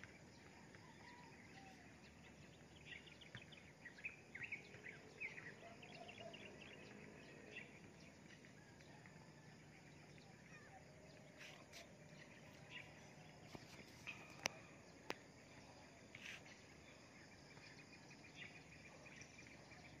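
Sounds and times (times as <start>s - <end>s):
faint bird chirps: 10.2s - 20.0s.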